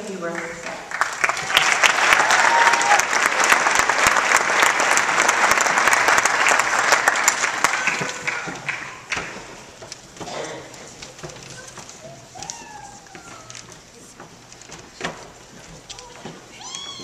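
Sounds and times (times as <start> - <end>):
audience applauding: 0.3 - 9.5.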